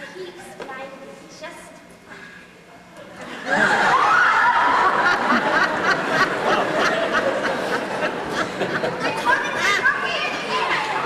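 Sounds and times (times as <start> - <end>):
people laughing: 3.1 - 11.0
crowd shouting: 3.7 - 5.5.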